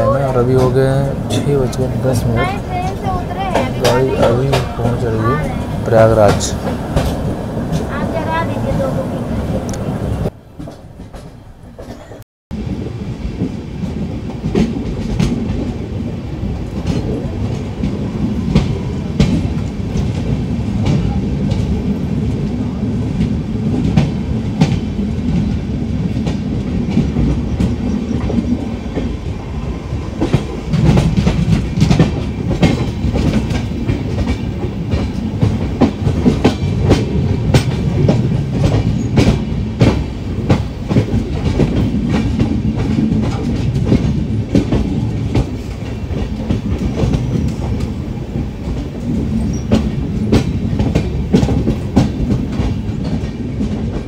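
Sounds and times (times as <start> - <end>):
wheels clicking over rail joints: 0.0 - 9.0, 30.2 - 54.0
train low rumble: 0.0 - 54.0.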